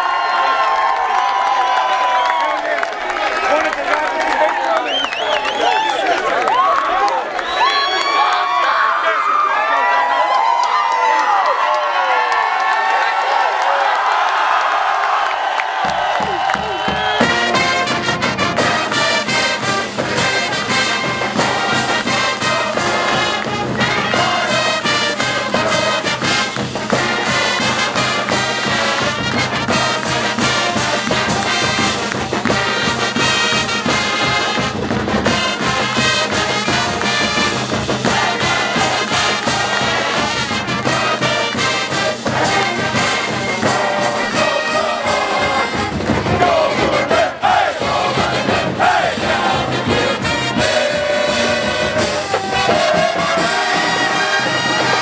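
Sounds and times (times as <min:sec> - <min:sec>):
marching band playing: 0:15.7 - 0:55.0
steady drum beat: 0:15.8 - 0:55.0.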